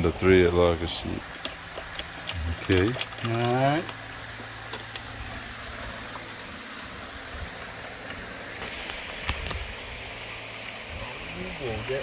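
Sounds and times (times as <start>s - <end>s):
low background hiss: 0.0s - 12.0s
light clicks and taps of parts: 1.2s - 6.1s.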